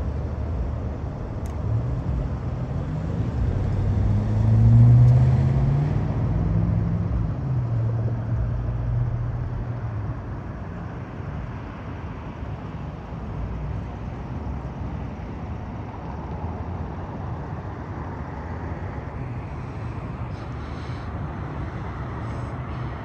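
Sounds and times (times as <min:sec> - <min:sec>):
passing vehicle engine hum: 0:00.0 - 0:10.9, 0:16.9 - 0:23.0
traffic noise of cars: 0:00.0 - 0:23.0.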